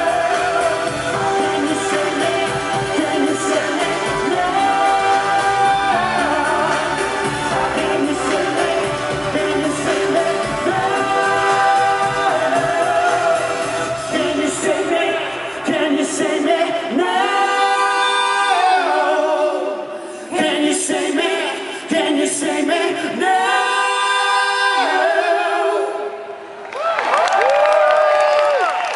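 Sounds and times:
man singing: 0:00.0 - 0:26.0
women backing singers: 0:00.0 - 0:26.1
synth-pop backing music: 0:00.0 - 0:26.4
crowd cheering: 0:26.6 - 0:28.9.

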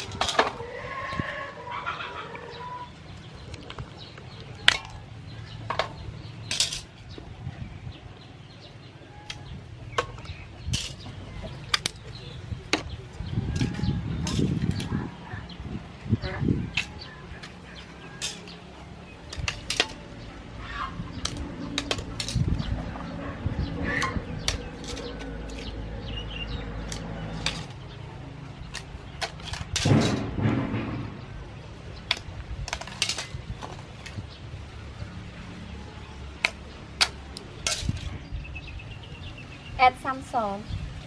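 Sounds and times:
chickens clucking: 0:00.0 - 0:07.3, 0:09.0 - 0:25.8
shells clinking in a metal bowl: 0:06.5 - 0:06.9, 0:10.7 - 0:11.0, 0:18.1 - 0:18.6, 0:36.4 - 0:38.1.

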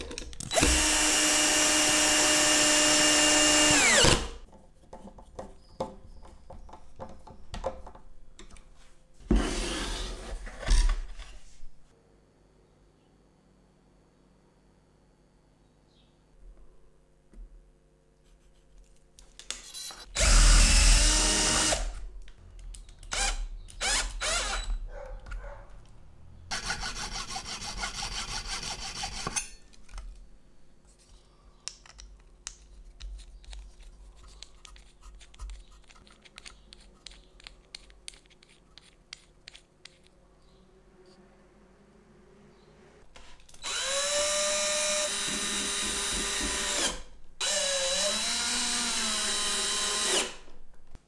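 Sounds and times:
power drill running: 0:00.5 - 0:04.3, 0:20.2 - 0:22.0, 0:23.1 - 0:24.8, 0:43.6 - 0:50.4
hacksaw sawing: 0:26.5 - 0:29.4
faint clicks of small parts: 0:31.6 - 0:40.2.

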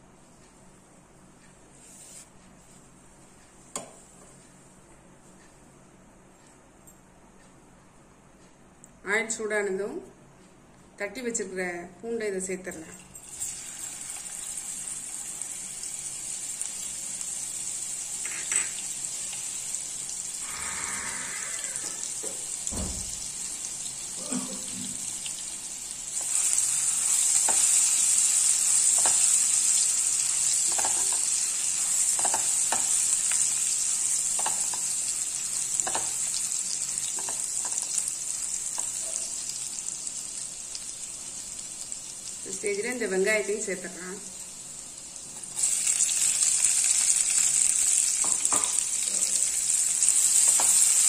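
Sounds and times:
garlic sizzling in hot oil: 0:13.2 - 0:51.0
spatula scraping and tapping pan: 0:27.3 - 0:27.9, 0:28.8 - 0:29.4, 0:30.6 - 0:31.4, 0:32.0 - 0:33.0, 0:34.3 - 0:35.0, 0:35.8 - 0:36.3, 0:37.1 - 0:38.0.

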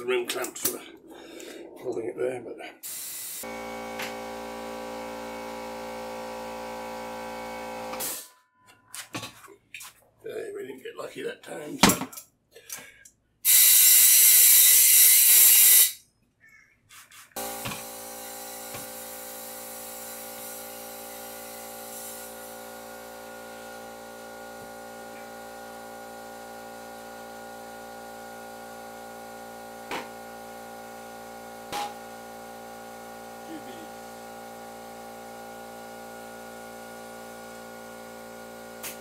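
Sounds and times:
compressed air hissing: 0:02.8 - 0:03.5, 0:17.4 - 0:22.9.

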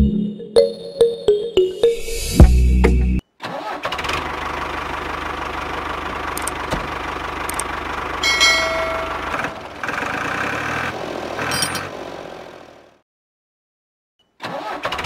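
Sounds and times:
tractor engine running: 0:03.8 - 0:12.8
loud high ringing: 0:08.2 - 0:09.8.

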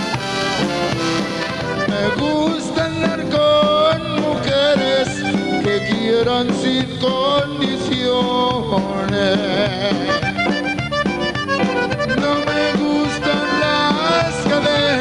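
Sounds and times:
accordion melody: 0:00.0 - 0:15.0
band playing live: 0:00.0 - 0:15.0
man singing: 0:01.8 - 0:10.3, 0:12.1 - 0:15.0.

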